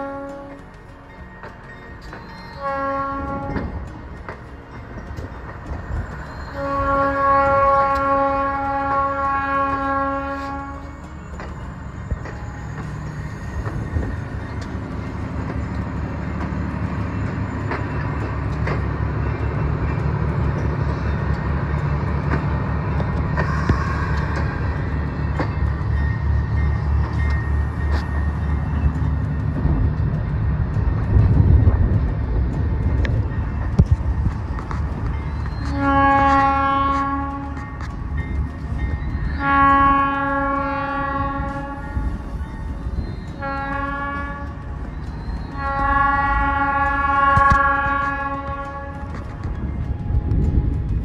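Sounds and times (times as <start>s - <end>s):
train air horn blast: 0.0s - 0.7s, 2.6s - 3.7s, 6.5s - 11.0s, 35.7s - 37.8s, 39.4s - 42.2s, 43.4s - 44.6s, 45.6s - 49.2s
train wheels clacking: 0.0s - 51.0s.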